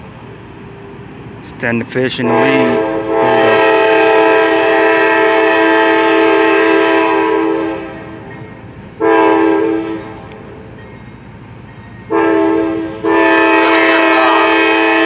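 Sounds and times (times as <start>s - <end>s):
locomotive air horn blasts: 2.1s - 8.3s, 9.0s - 10.5s, 12.1s - 15.0s.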